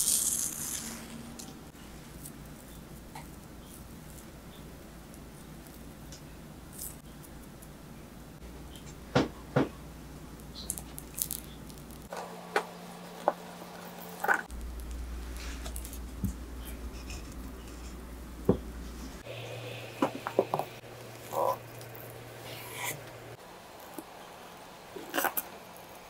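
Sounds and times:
low hum: 9.8s - 23.6s.

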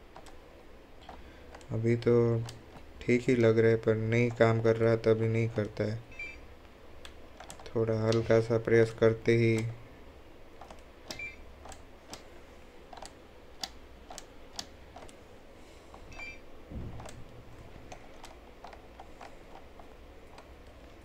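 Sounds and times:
plastic drivetrain clicks: 7.4s - 8.2s, 16.9s - 17.2s, 17.8s - 20.8s
dull bump: 16.7s - 17.7s.

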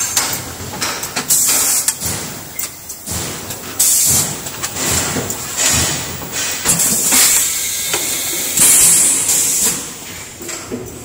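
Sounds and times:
machine clicks and clunks: 0.0s - 11.0s
compressed air hissing: 6.3s - 9.9s.

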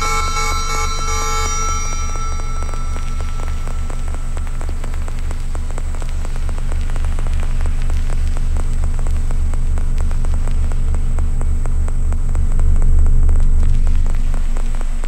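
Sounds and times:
thin high whine: 0.0s - 7.8s
glitchy crackling clicks: 0.0s - 15.0s
throbbing low bass drone: 0.0s - 15.0s.

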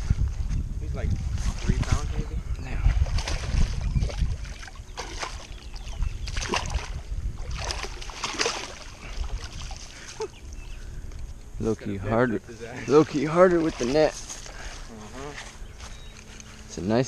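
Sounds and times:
wind on microphone: 0.0s - 12.6s
landing net sloshing in water: 2.8s - 10.4s, 12.9s - 14.7s
fish splashing at surface: 3.0s - 10.0s.

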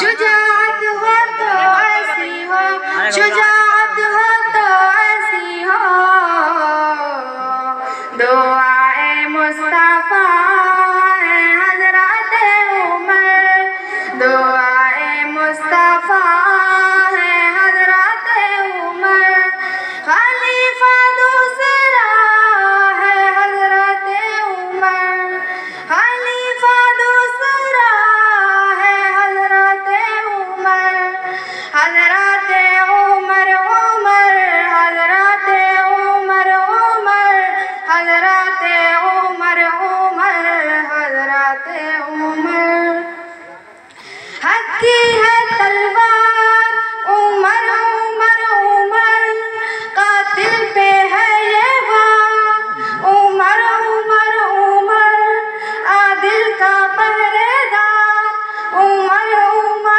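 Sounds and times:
person singing in a high voice: 0.0s - 13.4s, 44.4s - 59.9s.

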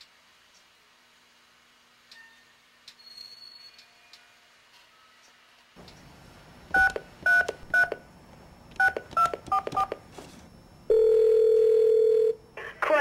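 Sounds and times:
telephone keypad beeps: 6.8s - 8.0s, 8.8s - 9.9s, 10.9s - 12.4s
telephone ringback tone: 10.9s - 12.4s.

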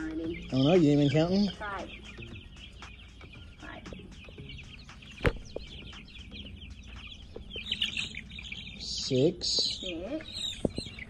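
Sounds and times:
chicks peeping: 0.0s - 11.0s
sharp knock: 5.2s - 5.7s.

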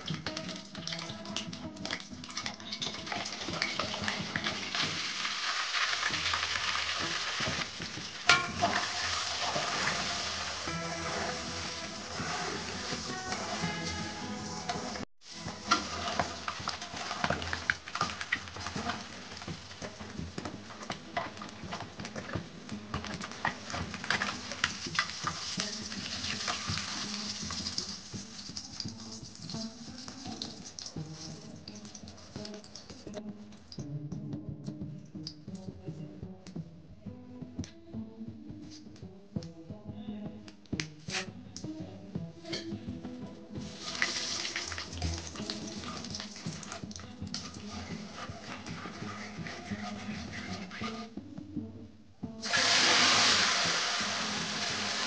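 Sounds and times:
eggs sizzling in hot oil: 0.0s - 33.2s, 43.5s - 51.1s, 52.4s - 55.0s
metal utensils scraping a pan: 1.9s - 33.0s, 42.4s - 42.8s, 43.6s - 51.1s.

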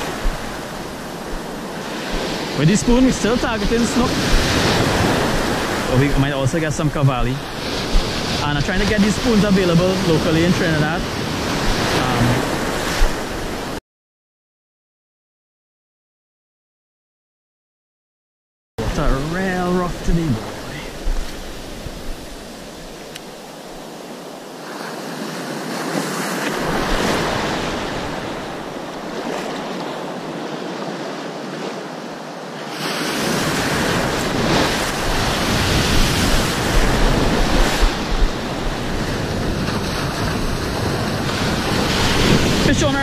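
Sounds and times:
wind buffeting microphone: 0.0s - 13.8s, 33.3s - 43.0s.

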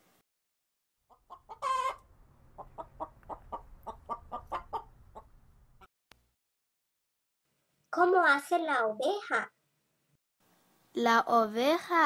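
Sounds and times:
rooster squawk: 1.1s - 2.0s, 2.6s - 5.3s
rooster clucking: 1.1s - 5.4s.

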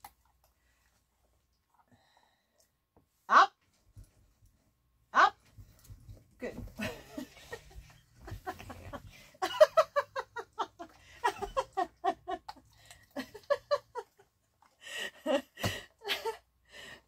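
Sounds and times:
woman giggling: 6.8s - 14.2s, 14.8s - 16.4s.

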